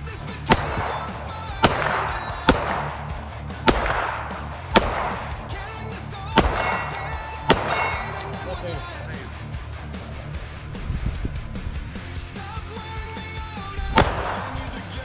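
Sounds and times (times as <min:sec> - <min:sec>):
background music: 0:00.0 - 0:15.0
pistol shots with echo: 0:00.2 - 0:09.2, 0:13.8 - 0:15.0.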